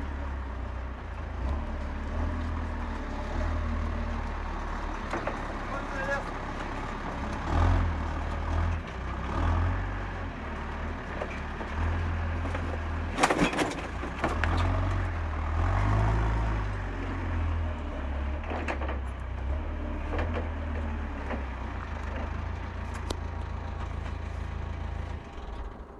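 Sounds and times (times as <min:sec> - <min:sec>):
diesel engine running: 0:00.0 - 0:25.9
metal crunching and clanking: 0:11.0 - 0:15.1.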